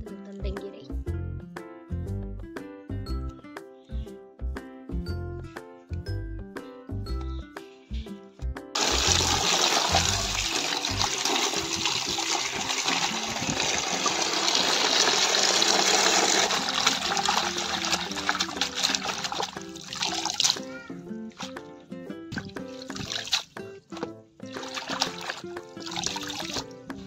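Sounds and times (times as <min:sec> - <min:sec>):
light background tune: 0:00.0 - 0:14.4, 0:15.8 - 0:27.0
water running into plastic tub: 0:08.8 - 0:27.0.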